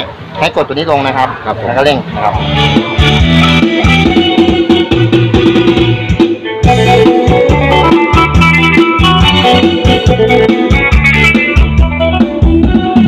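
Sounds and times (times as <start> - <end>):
loud music through pa speaker: 2.2 - 13.0.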